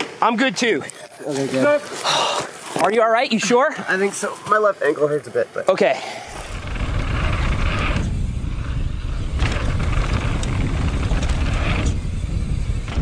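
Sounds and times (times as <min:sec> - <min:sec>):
bike tyre rumble on dirt: 0:06.2 - 0:13.0
wind buffeting: 0:06.2 - 0:13.0.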